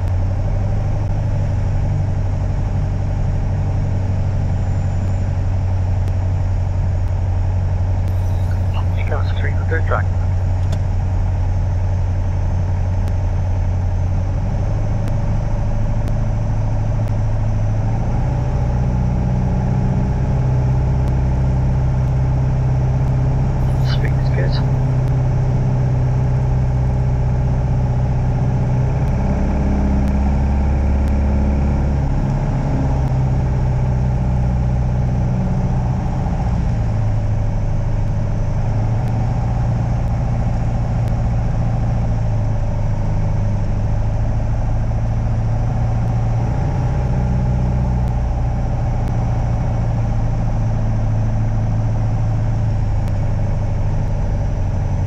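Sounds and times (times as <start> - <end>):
light aircraft engine droning: 0.0 - 17.5, 23.6 - 25.2.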